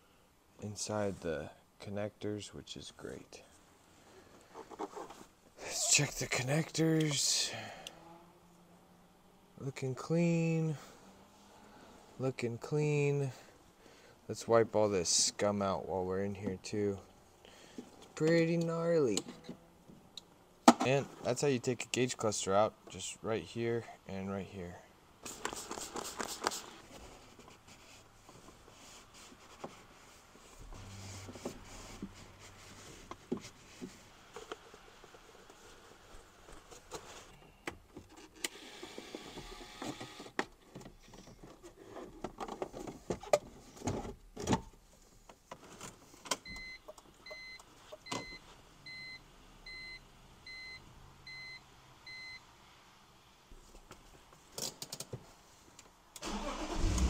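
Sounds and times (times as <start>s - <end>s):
dashboard warning chime beeping: 46.5s - 52.4s.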